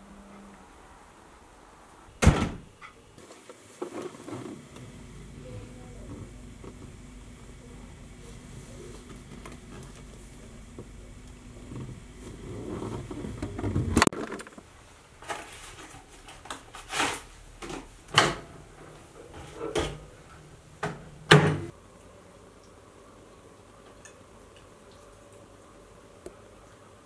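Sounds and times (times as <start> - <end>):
faint steady hum: 0.0 - 16.7, 17.4 - 27.0
microwave door opening and shutting: 2.2 - 2.7, 18.1 - 18.5, 20.8 - 21.7.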